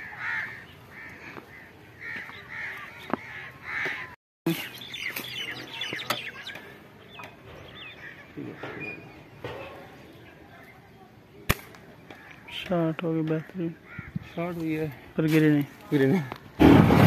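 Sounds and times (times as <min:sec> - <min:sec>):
birds calling: 0:00.0 - 0:16.5
bird chirps and whistled notes: 0:04.5 - 0:08.0.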